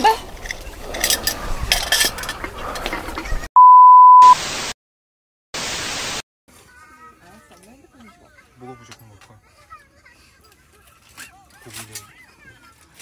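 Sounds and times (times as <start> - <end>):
electronic beep: 3.6 - 4.4
static hiss bursts: 4.2 - 4.8, 5.6 - 6.2.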